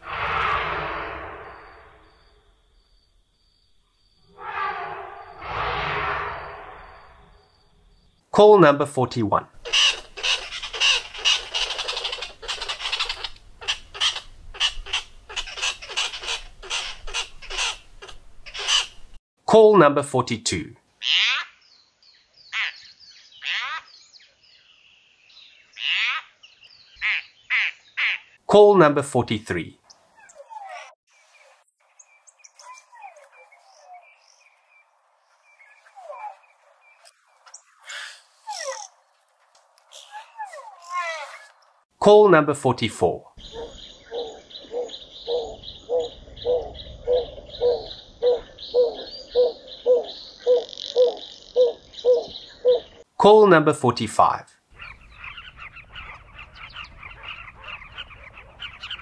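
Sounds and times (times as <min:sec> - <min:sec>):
animal harsh rasping calls: 0:04.3 - 0:07.1.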